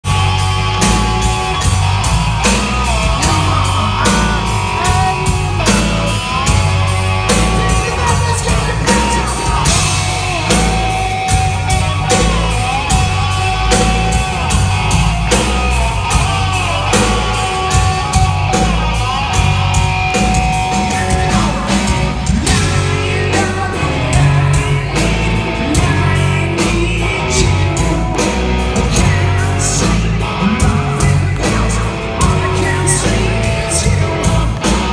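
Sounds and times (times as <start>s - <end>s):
hard rock band playing: 0.0s - 34.9s
man shouting vocals: 7.0s - 10.2s.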